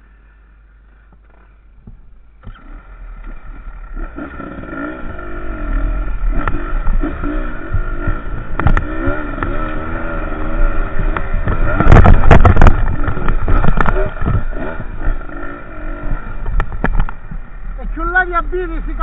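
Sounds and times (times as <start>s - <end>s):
dirt bike engine revving: 2.4s - 19.0s
bike rattling over stones: 11.0s - 15.5s, 16.1s - 17.7s.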